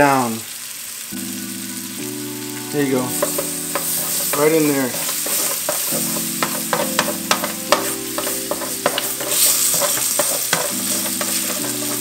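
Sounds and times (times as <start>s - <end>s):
meat sizzling in oil: 0.0s - 12.0s
utensil scraping pan: 3.2s - 12.0s.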